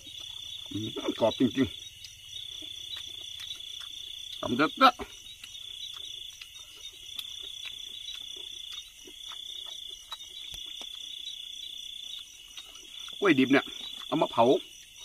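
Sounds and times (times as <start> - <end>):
crickets trilling: 0.0 - 15.0.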